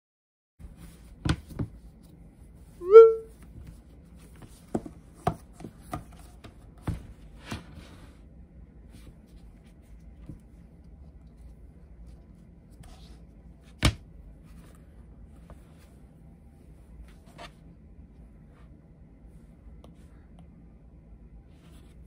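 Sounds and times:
short rising squeak: 2.8s - 3.3s.

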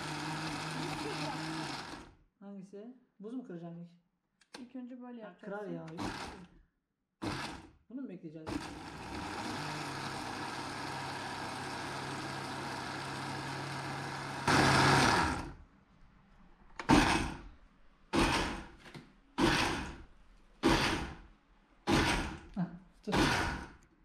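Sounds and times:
blender motor running: 0.0s - 2.1s, 5.9s - 6.4s, 7.2s - 7.6s, 8.5s - 15.6s, 16.8s - 17.4s, 18.2s - 18.7s, 19.4s - 20.0s, 21.9s - 22.5s, 23.1s - 23.7s
blender pulsing bursts: 0.0s - 2.1s, 7.2s - 7.6s, 8.5s - 15.6s, 16.9s - 17.4s, 18.2s - 18.7s, 19.4s - 20.0s, 20.6s - 21.2s, 21.9s - 22.5s, 23.1s - 23.8s.

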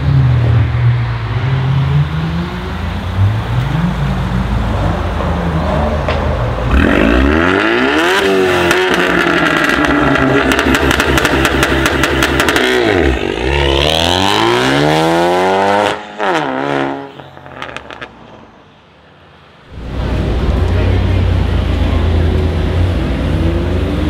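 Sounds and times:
car engine idling and revving: 0.0s - 24.0s
exhaust crackling pops: 8.7s - 12.8s.

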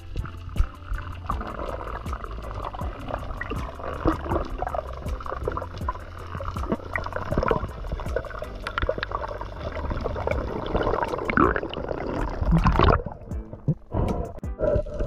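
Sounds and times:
bubbly gurgling: 0.0s - 13.9s, 14.6s - 15.0s
steady low rumble: 0.0s - 14.4s
crackle of sharp clicks underwater: 0.0s - 15.0s.

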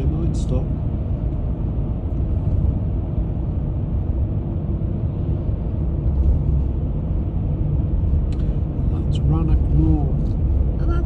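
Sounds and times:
car road rumble from inside: 0.0s - 11.0s.

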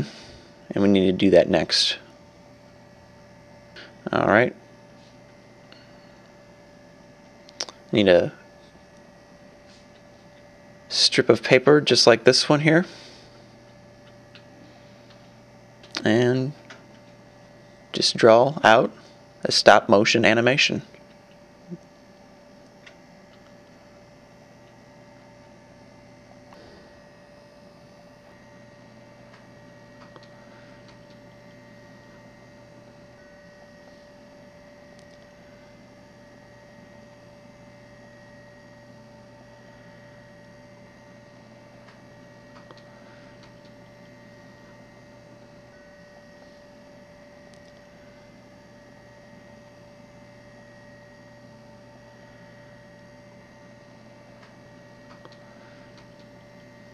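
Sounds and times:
electrical hum: 0.0s - 56.9s.

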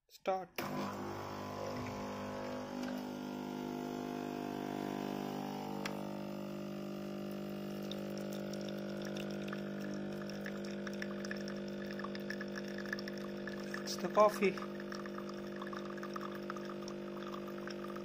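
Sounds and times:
espresso machine pump humming: 0.6s - 18.0s.

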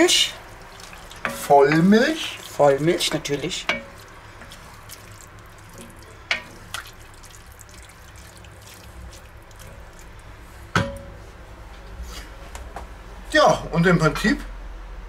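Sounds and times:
spoon stirring wet sauce: 0.0s - 10.7s
spoon knocking pot: 1.2s - 1.9s, 3.5s - 4.8s, 5.8s - 7.0s.

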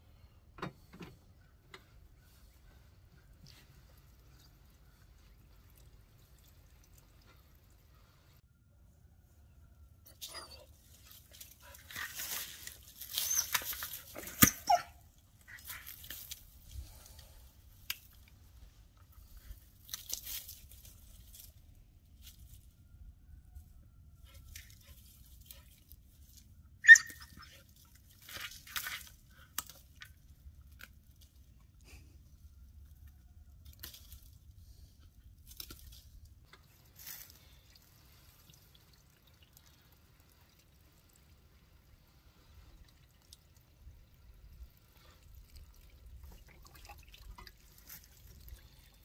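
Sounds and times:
dog rustling dry leaves: 10.9s - 14.2s.

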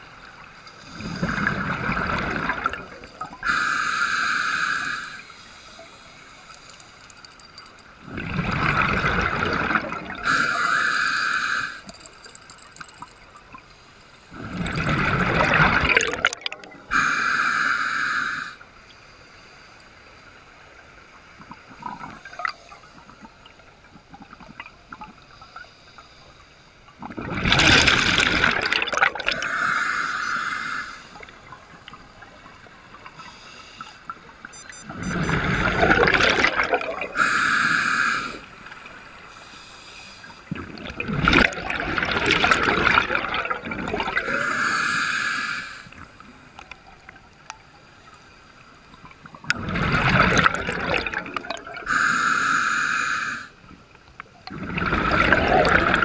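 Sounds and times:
exhaled bubbles: 0.9s - 3.9s, 7.5s - 13.1s, 14.3s - 18.5s, 27.0s - 31.6s, 34.5s - 38.5s, 40.4s - 45.0s, 49.0s - 52.4s, 54.4s - 56.0s
regulator hissing: 16.9s - 18.6s, 51.9s - 53.5s.

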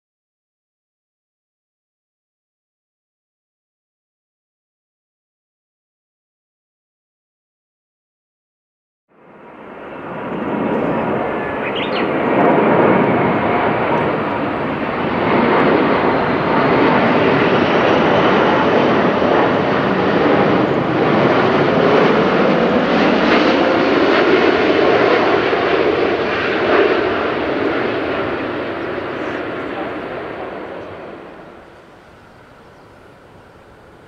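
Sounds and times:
jet airliner passing overhead: 9.1s - 34.0s.

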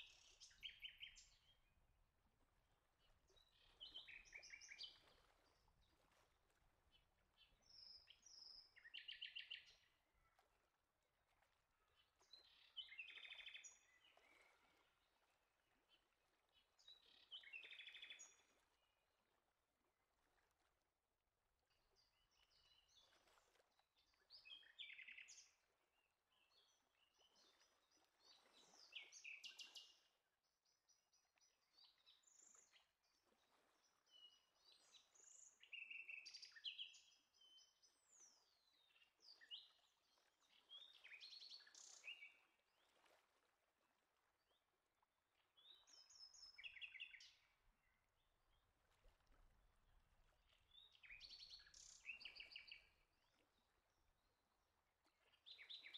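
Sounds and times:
songbirds chirping and trilling: 12.4s - 14.2s.

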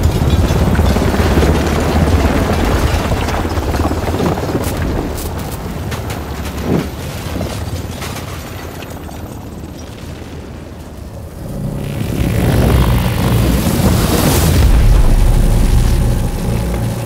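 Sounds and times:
deep rumble: 11.0s - 17.0s.

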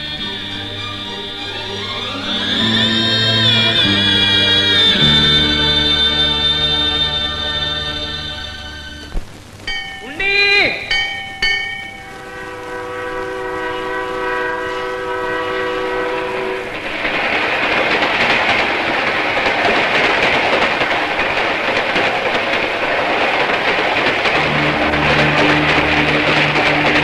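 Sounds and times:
train horn chord: 0.0s - 9.0s, 10.3s - 16.8s, 24.3s - 27.0s
train passing with rushing clatter: 0.0s - 9.1s, 9.7s - 27.0s
low steady tones: 0.0s - 16.8s, 24.2s - 27.0s.

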